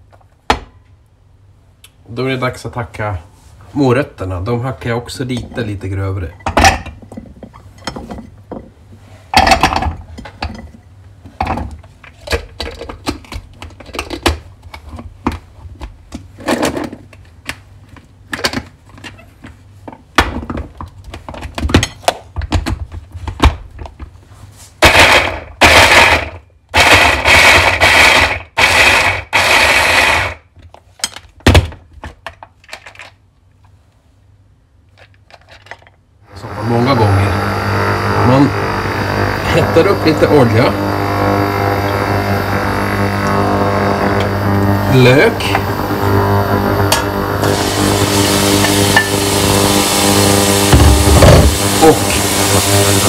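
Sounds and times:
electric mini chopper running: 0:36.3 - 0:53.0.

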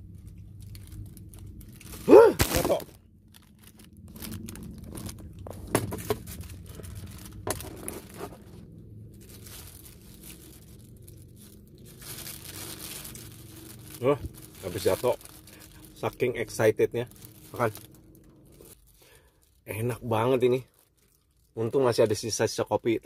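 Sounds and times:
plastic bags crinkling: 0:00.0 - 0:21.7
loud vocal exclamation: 0:02.1 - 0:02.9.

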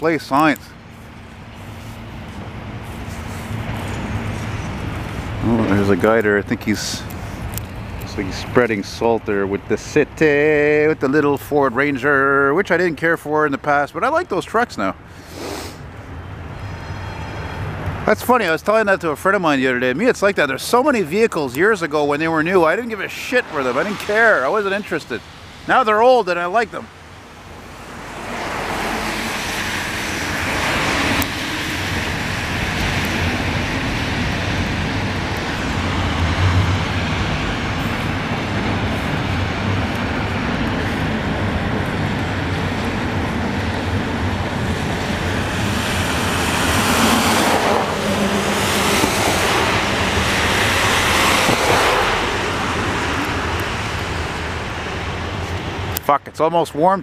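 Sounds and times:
cars passing: 0:00.0 - 0:56.5
freight train wheels on rails: 0:27.6 - 0:55.9.

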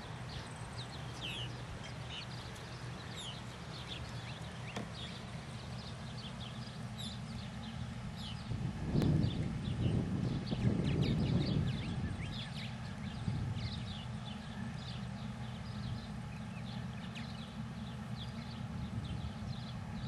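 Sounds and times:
birds chirping: 0:00.0 - 0:20.0
steady low hum: 0:00.0 - 0:20.0
loud low rumble: 0:08.3 - 0:14.5.

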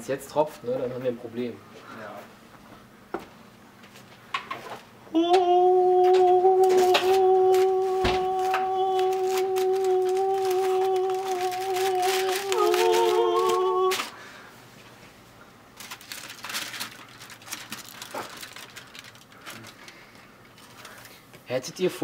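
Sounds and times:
aluminium foil crinkling: 0:06.6 - 0:14.2, 0:15.8 - 0:21.3.

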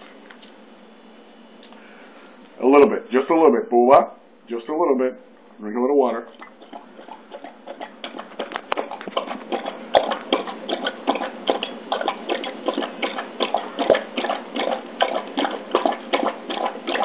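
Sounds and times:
dog lapping water: 0:06.3 - 0:17.0.

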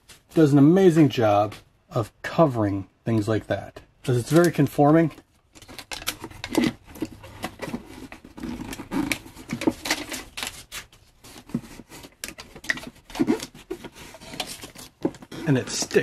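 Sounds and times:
foil tape crinkling and scraping: 0:05.5 - 0:16.0.

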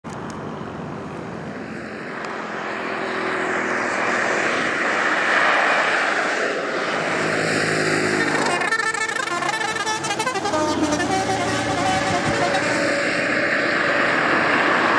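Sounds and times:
highway traffic passing: 0:00.0 - 0:14.9
bus pressure horn: 0:08.2 - 0:13.2.

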